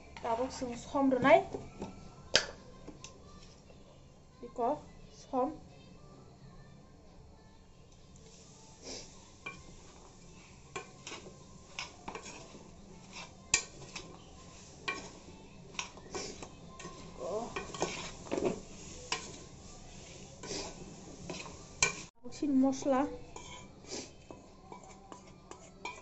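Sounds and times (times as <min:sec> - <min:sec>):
metal spoon clinking and scraping pot: 0:09.0 - 0:22.1, 0:23.2 - 0:26.0.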